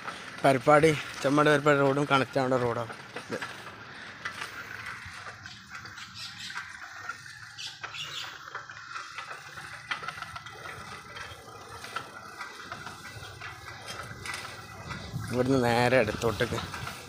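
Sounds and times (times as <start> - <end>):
bicycle clicks and ticks: 0.0 - 17.0
bicycle tyre road noise: 0.0 - 17.0.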